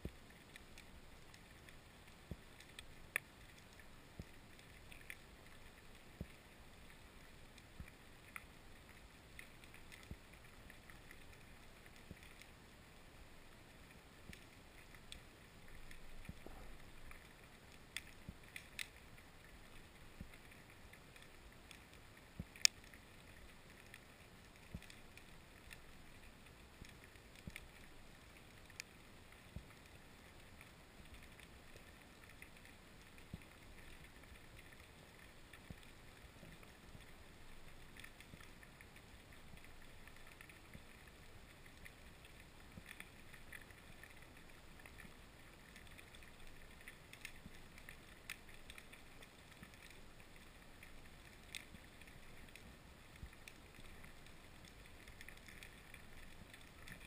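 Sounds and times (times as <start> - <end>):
soft underwater hiss: 0.0 - 57.0
sharp clicks and ticks: 22.4 - 23.0.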